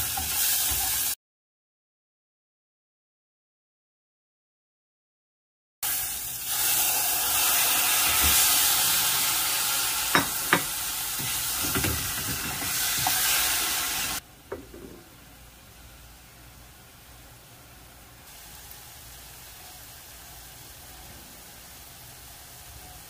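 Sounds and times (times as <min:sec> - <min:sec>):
food sizzling in a pan: 0:00.0 - 0:01.2, 0:05.8 - 0:15.0, 0:18.2 - 0:23.0
faint hiss: 0:15.0 - 0:23.0.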